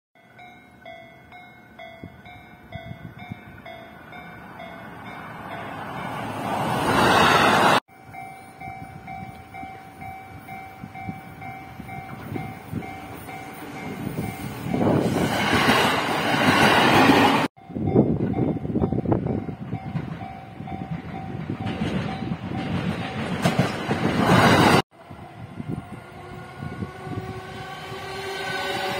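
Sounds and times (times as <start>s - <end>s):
level-crossing warning bell ringing: 0.2s - 6.4s, 7.9s - 15.1s, 17.6s - 23.5s
electric trains passing: 0.2s - 28.9s.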